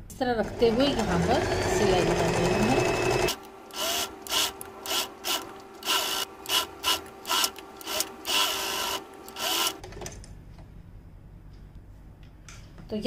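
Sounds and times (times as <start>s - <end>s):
sewing machine stitching: 0.4s - 9.9s.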